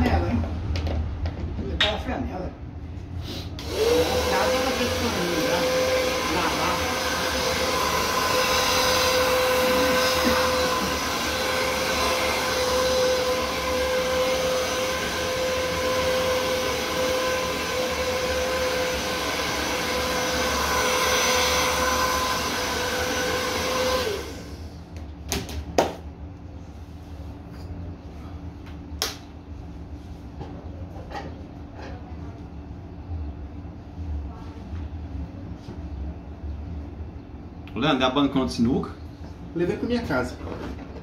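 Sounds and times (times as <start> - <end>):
hair dryer blowing: 3.5 - 24.8.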